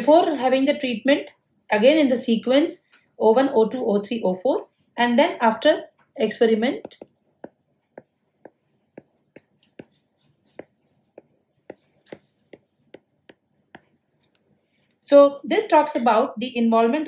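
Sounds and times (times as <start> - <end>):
stylus tapping on glass screen: 6.8 - 14.4.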